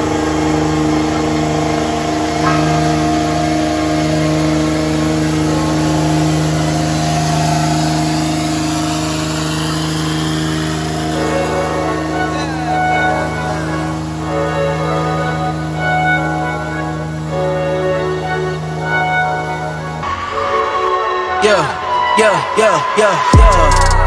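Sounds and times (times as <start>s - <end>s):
vehicle engine running: 0.0s - 20.2s
faint voices: 11.0s - 17.3s.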